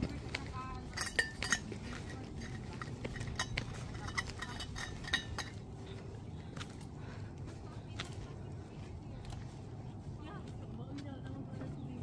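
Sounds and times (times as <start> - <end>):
small hard objects clinking: 0.0 - 5.6.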